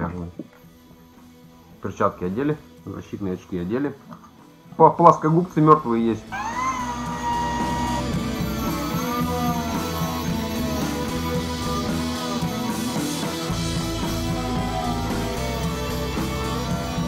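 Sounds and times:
steady bass: 6.3s - 17.0s
wavering guitar melody: 6.3s - 17.0s.

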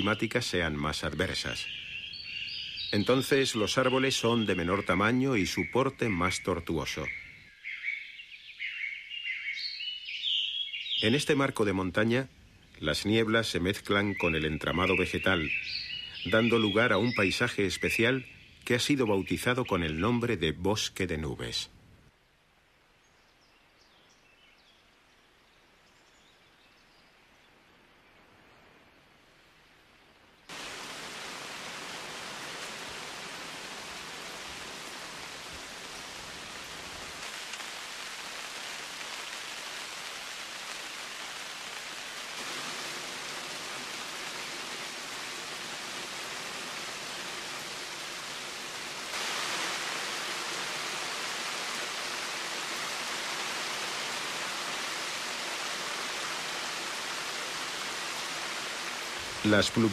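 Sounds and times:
heavy rain on water and leaves: 0.0s - 7.2s, 14.1s - 17.9s, 27.2s - 59.9s.

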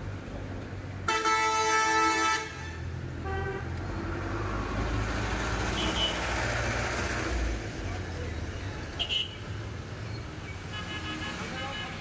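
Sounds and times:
low rumble of traffic: 0.0s - 12.0s
vehicle horn honking: 1.1s - 3.6s, 10.7s - 12.0s.

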